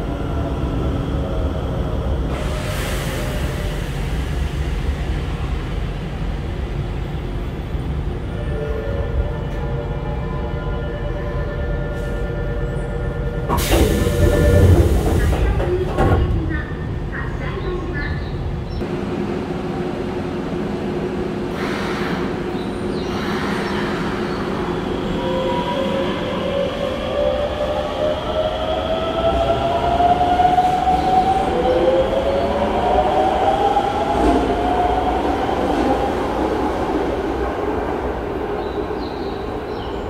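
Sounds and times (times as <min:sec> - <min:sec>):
wheels rumbling on rail: 0:11.2 - 0:40.0.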